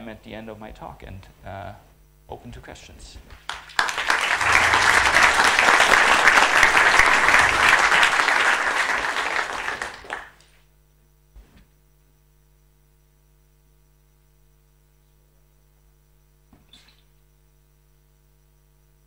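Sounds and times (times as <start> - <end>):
faint electrical hum: 0.0 - 19.0
audience applauding: 3.5 - 10.5.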